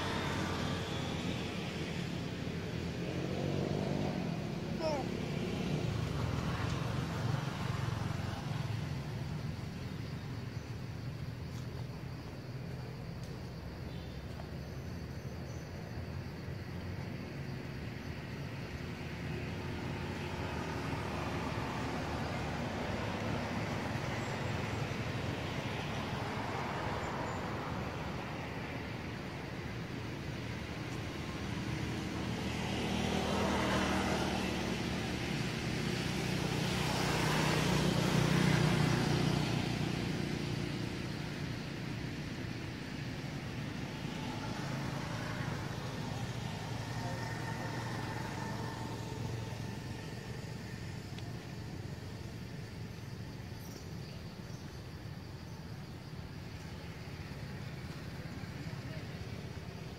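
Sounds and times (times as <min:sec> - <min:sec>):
vehicle engine passing by: 0:00.0 - 0:10.1, 0:19.4 - 0:53.0.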